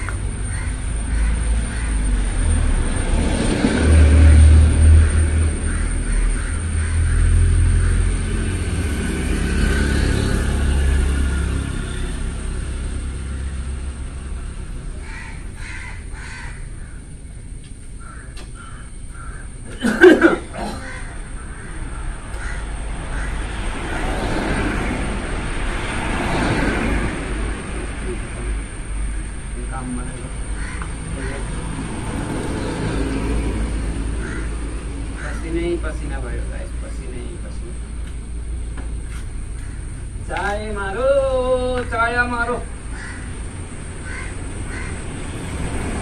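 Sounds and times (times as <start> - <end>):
low engine rumble: 0.0 - 46.0
bird calls: 15.0 - 19.8, 30.5 - 31.6.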